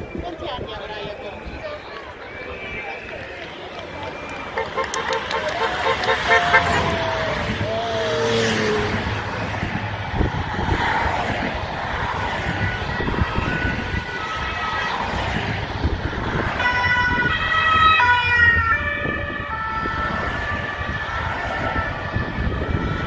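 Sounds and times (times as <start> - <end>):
two-tone sirens: 1.5 - 23.0
car and motorcycle engines passing: 3.8 - 23.0.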